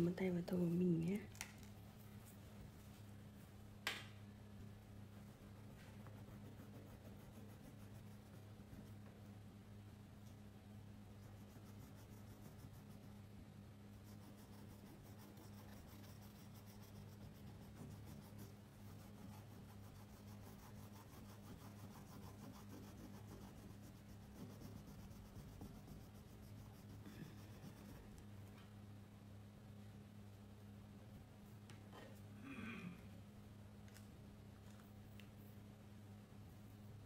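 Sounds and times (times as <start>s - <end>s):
crayon scribbling on paper: 5.2s - 9.0s, 11.2s - 13.1s, 14.0s - 28.2s.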